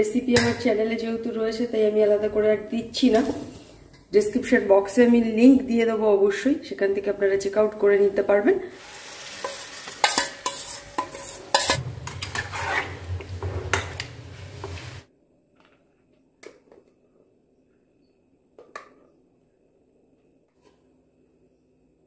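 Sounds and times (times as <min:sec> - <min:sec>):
utensils clattering against a pan: 0:09.4 - 0:14.8.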